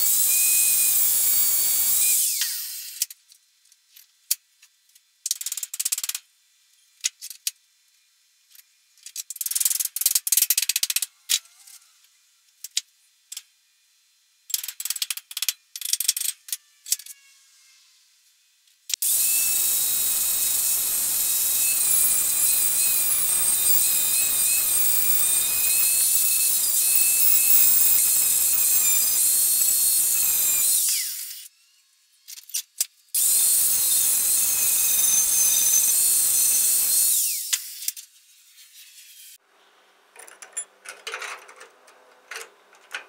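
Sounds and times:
angle grinder whining: 0:00.0 - 0:03.0, 0:19.0 - 0:31.5, 0:33.2 - 0:37.8.

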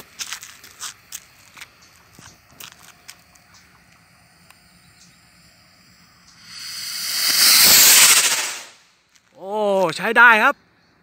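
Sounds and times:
rocket motor hiss: 0:03.2 - 0:08.8.

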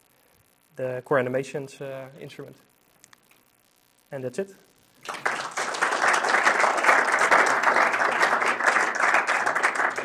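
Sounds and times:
audience applauding: 0:05.0 - 0:10.0.

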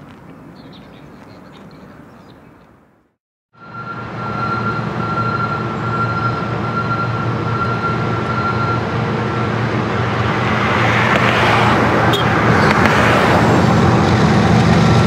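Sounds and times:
diesel locomotive engines rumbling: 0:03.6 - 0:15.0.

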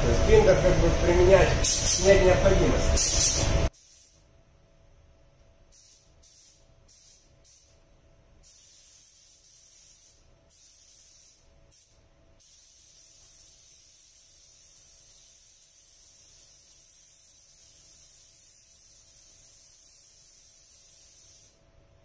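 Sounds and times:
spray gun hissing: 0:01.5 - 0:02.3, 0:03.0 - 0:04.2, 0:05.7 - 0:07.8, 0:08.4 - 0:21.6.

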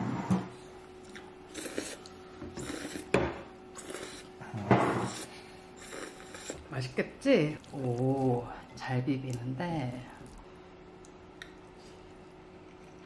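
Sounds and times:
noodles slurped: 0:01.1 - 0:03.1, 0:03.8 - 0:04.3, 0:05.0 - 0:06.7.

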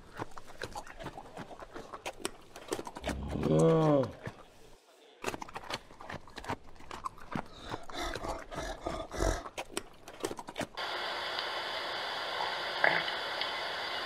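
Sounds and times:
panda crunching bamboo: 0:00.0 - 0:04.5, 0:05.2 - 0:10.8.

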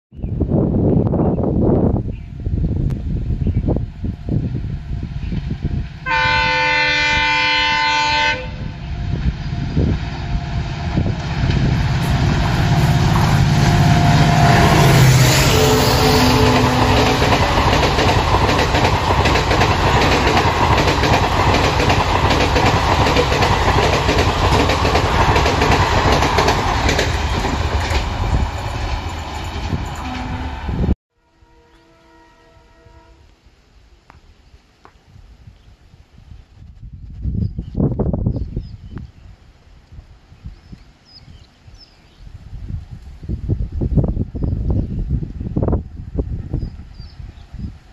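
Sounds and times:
locomotive horn: 0:06.0 - 0:08.9, 0:12.6 - 0:17.7, 0:30.0 - 0:33.3
locomotive engine rumble: 0:08.6 - 0:31.0
train wheels clickety-clack: 0:16.3 - 0:30.4.

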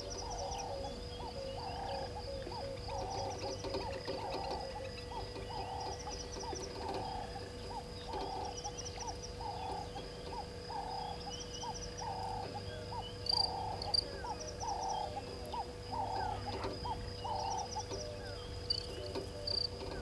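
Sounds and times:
animal calls: 0:00.0 - 0:20.0
high insect trill: 0:00.0 - 0:20.0.

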